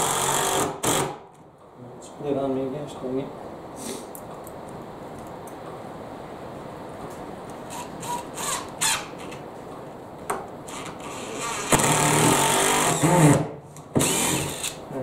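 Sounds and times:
cordless drill driving screw: 0.0 - 1.2, 7.7 - 9.4, 10.7 - 14.8.

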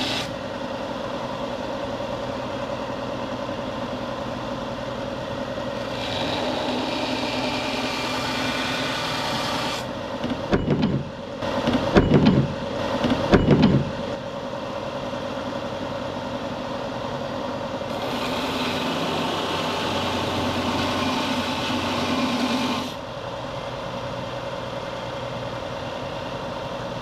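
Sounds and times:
wood on sanding belt hissing: 0.0 - 0.3
belt sander motor humming: 0.0 - 0.4, 5.8 - 9.9, 17.9 - 23.0
knocks: 10.2 - 14.0.

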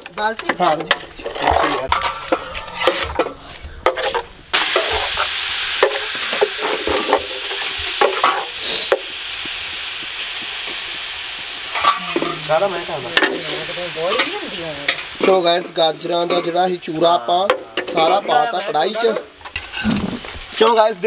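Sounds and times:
carrots sizzling in a pan: 4.5 - 21.0.

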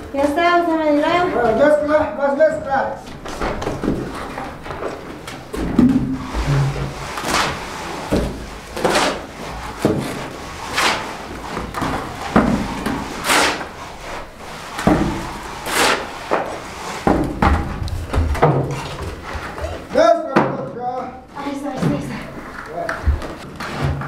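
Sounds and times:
shovel scraping concrete: 6.2 - 17.2.

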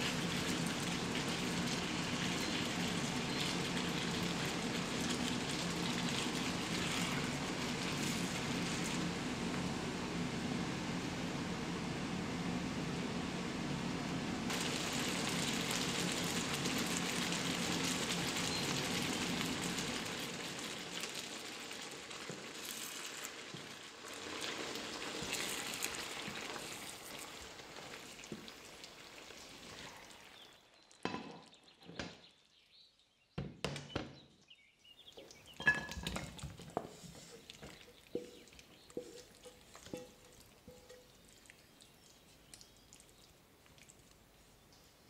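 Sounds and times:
food sizzling in a frying pan: 0.0 - 9.7, 14.5 - 30.6, 37.5 - 41.3.

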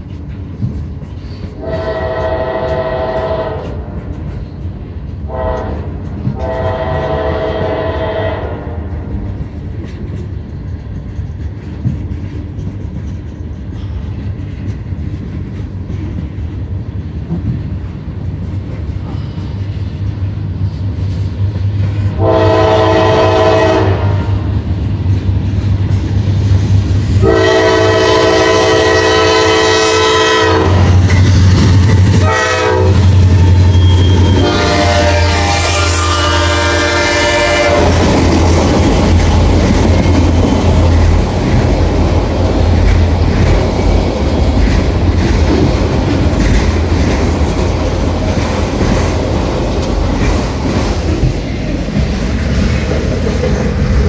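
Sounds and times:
freight train rumble and wheel clatter: 0.0 - 54.0
locomotive air horn blasts: 1.6 - 3.8, 5.3 - 8.8, 22.1 - 24.5, 27.2 - 31.0, 32.2 - 38.0.

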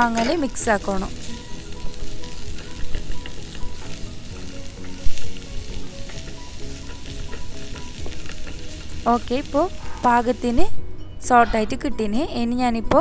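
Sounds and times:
onions sizzling in hot oil: 0.0 - 10.8
spatula stirring and scraping: 1.1 - 10.5.

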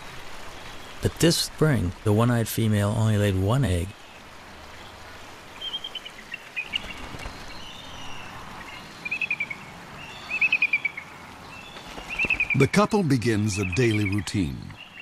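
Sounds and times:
steady background hiss: 0.0 - 15.0
eagles chittering calls: 5.6 - 15.0.

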